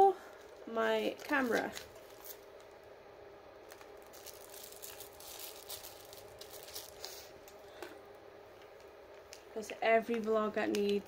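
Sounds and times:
faint steady hum: 0.0s - 11.0s
packaging crinkling: 0.3s - 2.9s, 3.6s - 7.6s.

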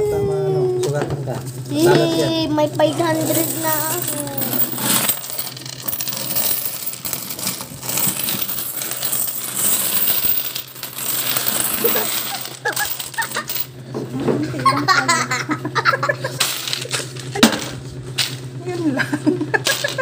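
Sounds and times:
coins clinking and jingling: 3.0s - 13.7s.

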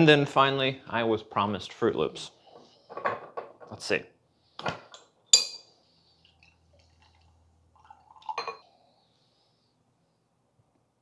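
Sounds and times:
glass clinking: 5.3s - 5.7s, 7.8s - 8.6s.

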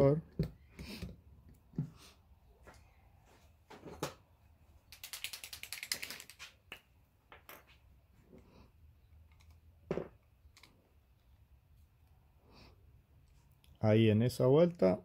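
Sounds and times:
correction pen ball rattling: 4.9s - 7.5s.

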